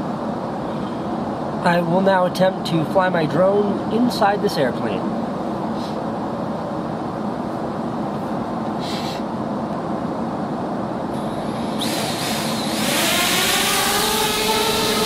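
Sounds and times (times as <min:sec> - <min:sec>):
quadcopter propellers whining: 0:11.2 - 0:15.0.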